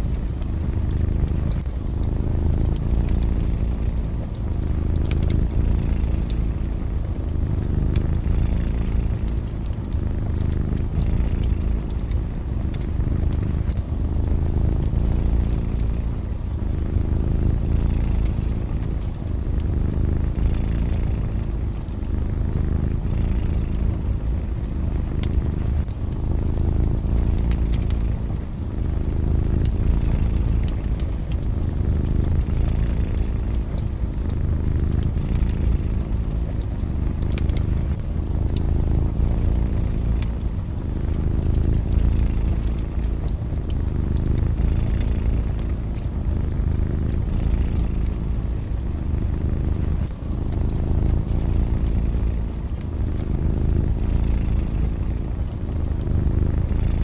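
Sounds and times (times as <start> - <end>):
cats purring: 0.0 - 57.0
fire crackling: 0.0 - 57.0.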